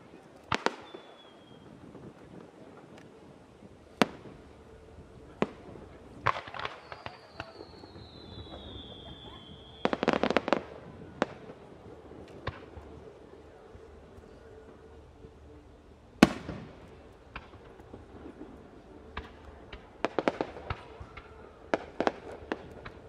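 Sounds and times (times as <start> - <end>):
firework bangs: 0.0 - 3.0, 3.9 - 14.9, 16.2 - 23.0
rapid firework reports: 0.0 - 23.0
firework whistle falling: 0.6 - 1.8, 6.3 - 11.4.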